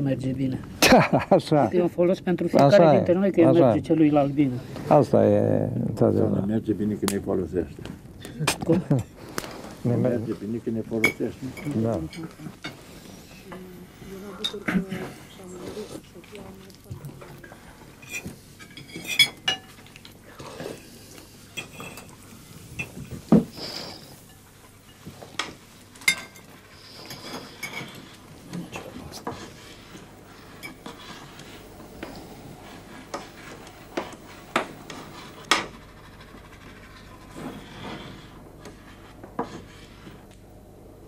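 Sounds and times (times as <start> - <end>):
cutlery clinking on plates: 18.0 - 19.8, 21.6 - 22.1, 24.0 - 26.5
pastel scratching on canvas: 28.7 - 40.3.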